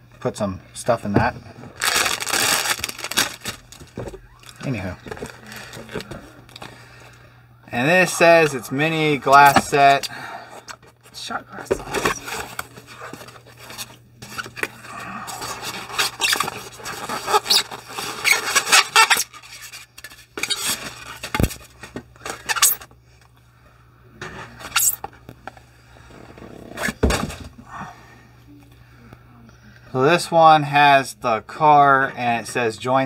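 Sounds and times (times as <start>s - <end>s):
paper wrapping rustling: 1.7s - 6.7s
cardboard box opening: 1.8s - 6.6s.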